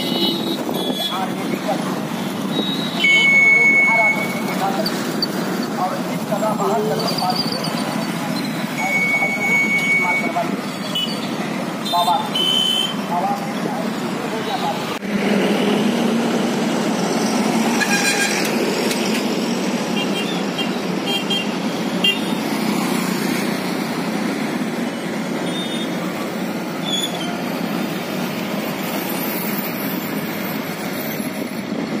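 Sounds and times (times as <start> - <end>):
road traffic: 0.0 - 32.0
short horn beeps: 2.5 - 4.6, 8.8 - 11.3, 11.9 - 13.0.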